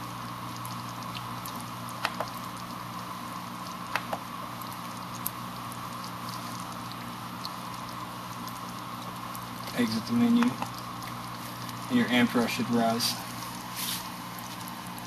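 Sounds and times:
electrical hum: 0:00.0 - 0:15.0
electrolysis cell fizzing and bubbling: 0:00.0 - 0:15.0
sharp clicks: 0:03.9 - 0:04.2.

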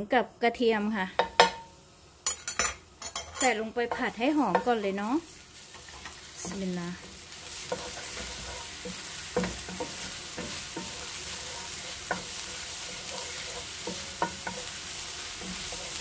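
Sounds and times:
ginger and garlic sizzling in oil: 0:00.2 - 0:16.0
wooden spatula scraping pan: 0:03.9 - 0:16.0.

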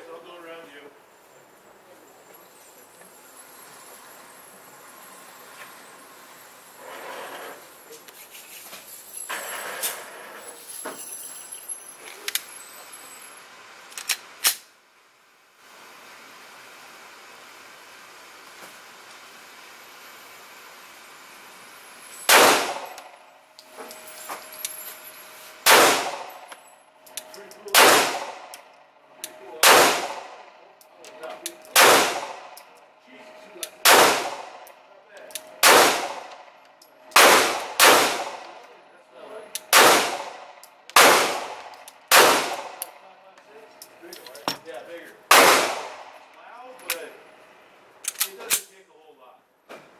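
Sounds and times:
pistol shots with ringing echo: 0:22.3 - 0:23.3, 0:25.6 - 0:26.5, 0:27.2 - 0:28.8, 0:29.5 - 0:30.6, 0:31.6 - 0:32.7, 0:33.7 - 0:38.7, 0:39.6 - 0:43.0, 0:45.3 - 0:46.2.

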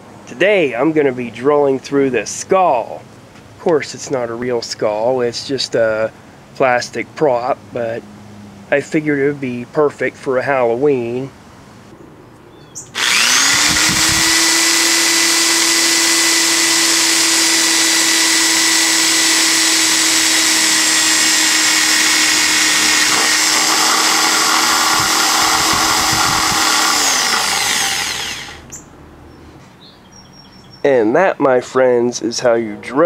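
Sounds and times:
electric drill boring into plastic: 0:13.0 - 0:28.7.

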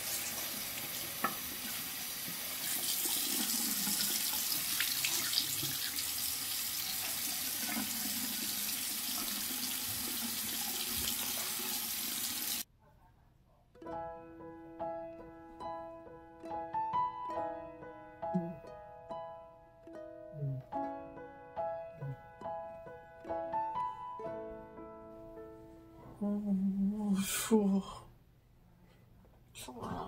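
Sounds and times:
washcloth rinsed and squeezed: 0:00.0 - 0:12.6
tap running into sink: 0:00.8 - 0:06.0, 0:06.8 - 0:11.8
piano music: 0:13.8 - 0:26.5.

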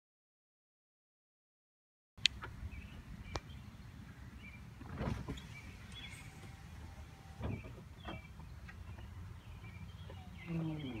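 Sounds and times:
low motor hum: 0:02.4 - 0:11.0.

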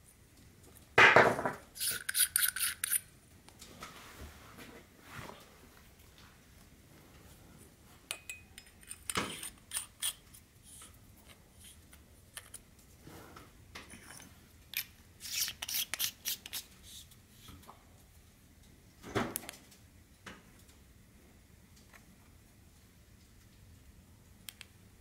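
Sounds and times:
flashlight threads scraping and clicking: 0:01.8 - 0:03.0, 0:08.6 - 0:12.6, 0:13.9 - 0:17.0.

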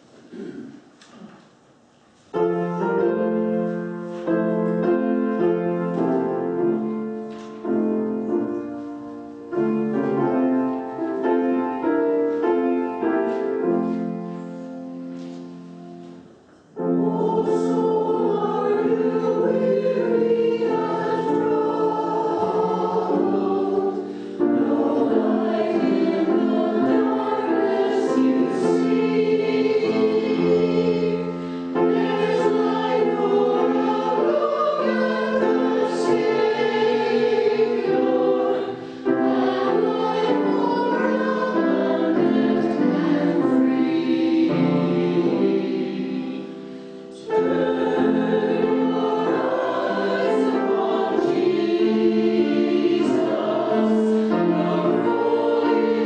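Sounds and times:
choir of mixed voices singing: 0:16.7 - 0:56.0.

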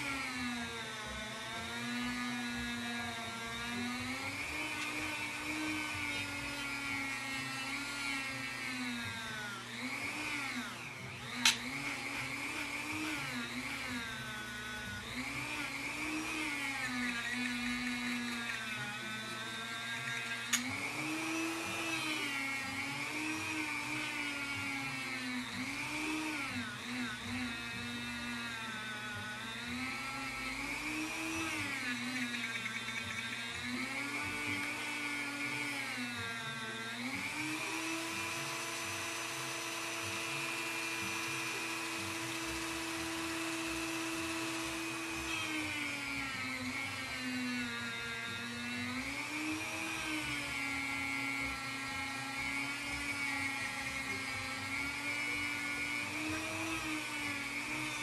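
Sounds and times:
rotary tool whining on metal: 0:00.0 - 0:58.0
sharp clicks: 0:11.3 - 0:11.7, 0:20.1 - 0:20.8.

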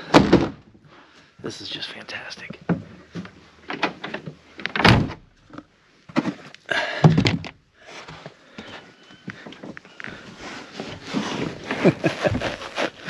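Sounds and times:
rustling of clothes and bedding: 0:07.9 - 0:13.0.

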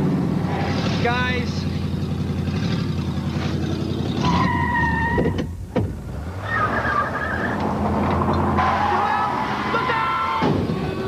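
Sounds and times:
car engine driving away: 0:00.0 - 0:11.0
wavering squeal: 0:06.4 - 0:07.6, 0:08.4 - 0:11.0.

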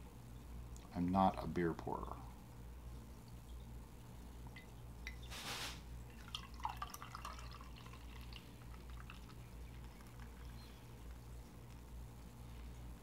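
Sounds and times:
low steady hum: 0:00.0 - 0:13.0
beer pouring and gurgling: 0:06.1 - 0:11.3.

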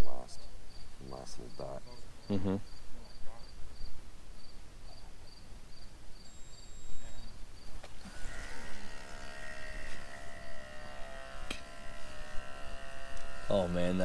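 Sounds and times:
crickets chirping: 0:00.0 - 0:14.0
pump buzzing: 0:07.8 - 0:14.0.

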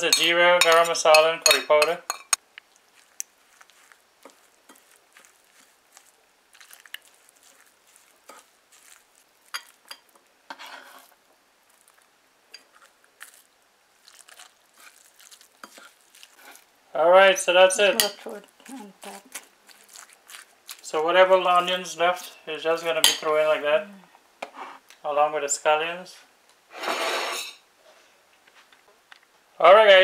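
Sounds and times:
metal spoon scraping ceramic plate: 0:00.0 - 0:02.4, 0:09.6 - 0:11.1, 0:26.8 - 0:27.6.

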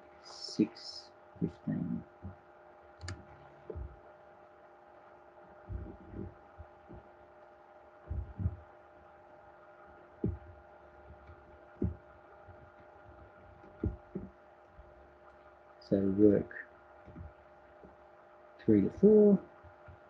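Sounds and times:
faint electrical hum: 0:00.0 - 0:20.0
soft low thumps: 0:01.4 - 0:04.2, 0:05.0 - 0:15.7, 0:16.8 - 0:18.1.

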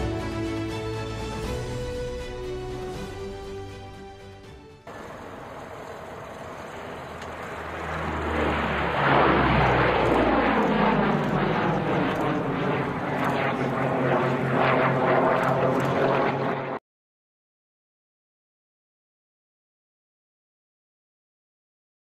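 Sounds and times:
propeller plane engines flying past: 0:04.9 - 0:16.8.

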